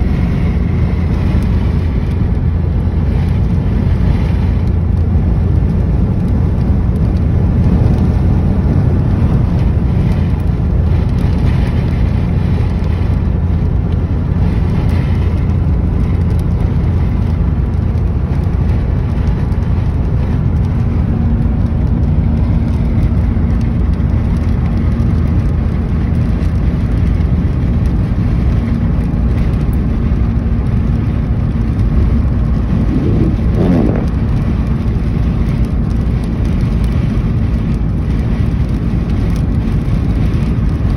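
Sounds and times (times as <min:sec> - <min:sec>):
tyre and engine rumble: 0:00.0 - 0:40.9
rising then falling tone: 0:32.6 - 0:34.3.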